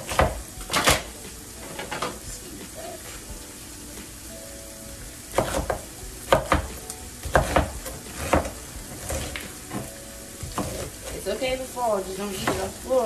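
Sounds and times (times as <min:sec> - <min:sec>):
knife chopping cabbage on board: 0:00.0 - 0:01.1, 0:05.3 - 0:11.1.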